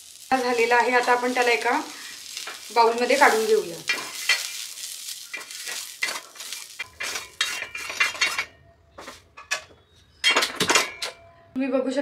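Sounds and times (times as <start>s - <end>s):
wooden spatula scraping and tapping: 2.4s - 10.0s.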